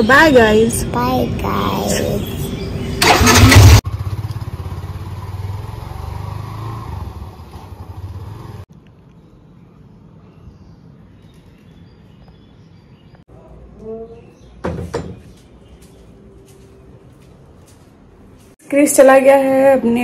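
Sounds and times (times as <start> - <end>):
vehicle engine running: 2.8 - 8.6.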